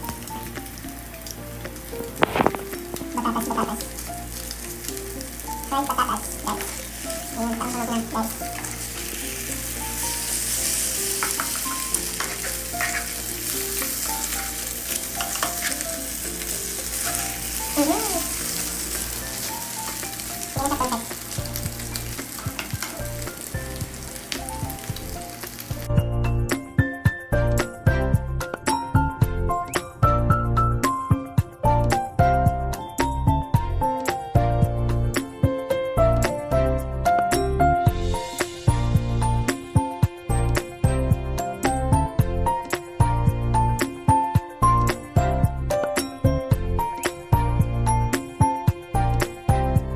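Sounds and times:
potatoes sizzling in pan: 0.0s - 25.9s
spatula scraping pan: 10.2s - 20.1s, 21.9s - 23.3s.

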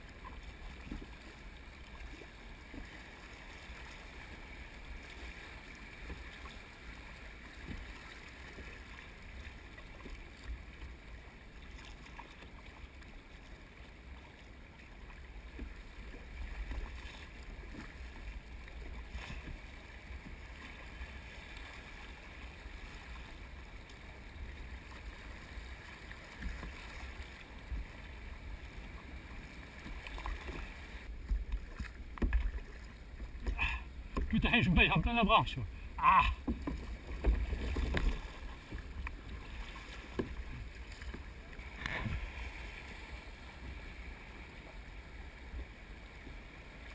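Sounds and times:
river water rushing: 32.6s - 36.4s.

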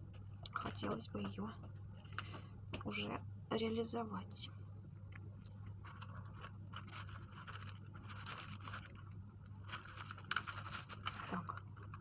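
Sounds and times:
artificial leaves rustling: 5.9s - 12.0s.

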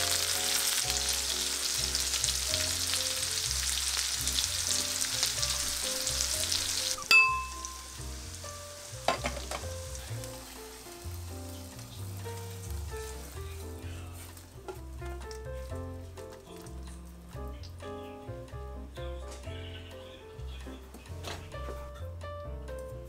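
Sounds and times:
food sizzling in frying pan: 0.0s - 14.5s
soft background music: 0.0s - 23.0s
sharp ringing clink: 7.1s - 7.9s.

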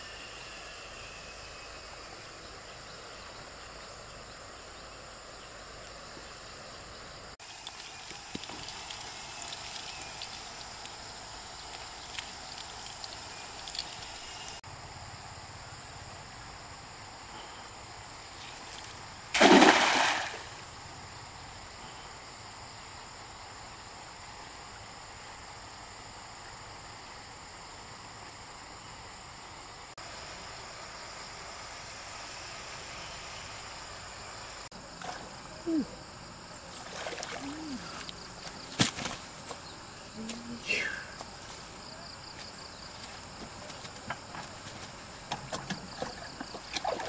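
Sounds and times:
stream water running: 1.4s - 14.6s, 17.8s - 21.8s, 23.9s - 47.0s
loud splash: 19.3s - 20.6s.

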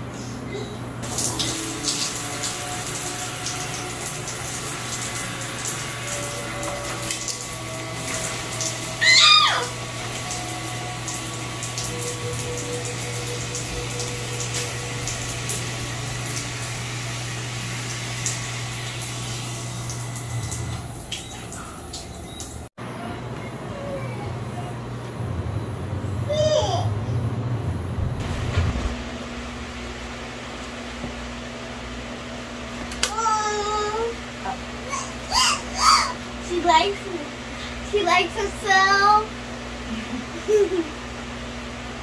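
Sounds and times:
water running from tap: 1.0s - 22.7s, 33.0s - 39.3s, 40.2s - 41.0s
steady low hum: 9.8s - 40.9s.

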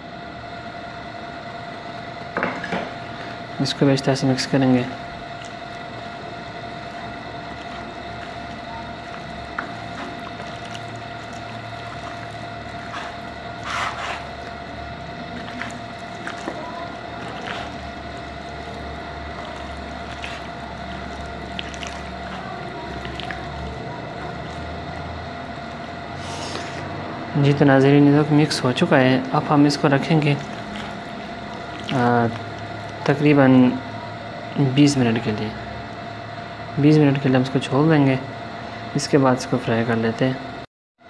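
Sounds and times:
background hum: 0.0s - 40.4s
hand mixing chicken in bowl: 3.7s - 27.0s, 27.9s - 35.3s
soft wet squishing: 4.1s - 27.0s, 28.5s - 34.2s.

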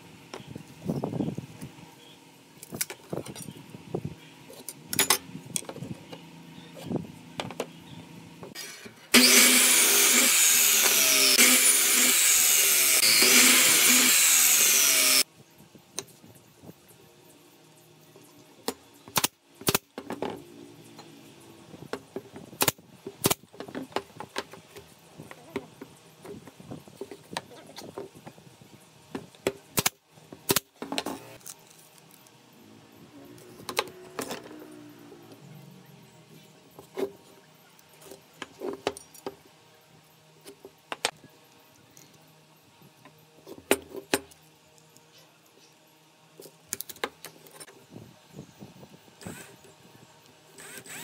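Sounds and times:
electric miter saw cutting wood: 8.5s - 15.3s, 50.6s - 51.0s.

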